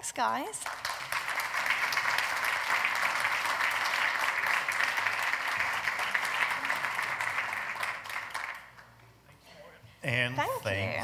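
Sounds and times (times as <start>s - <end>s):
audience applauding: 0.6s - 9.0s.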